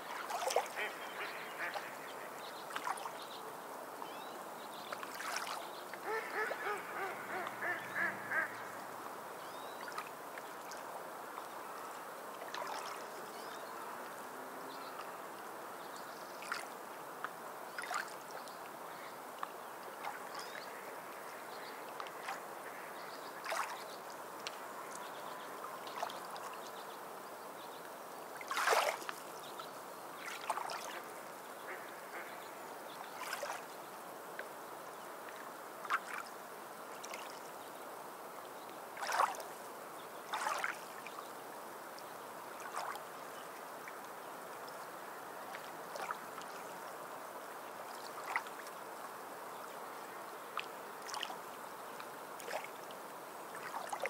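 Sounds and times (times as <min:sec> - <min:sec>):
bird calls: 0:00.5 - 0:03.0, 0:05.2 - 0:08.8.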